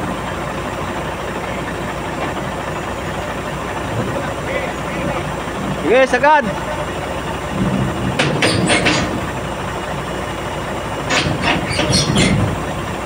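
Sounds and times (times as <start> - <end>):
diesel engine running: 0.0 - 13.0
metallic clanks and squeaks of tracks: 7.6 - 13.0.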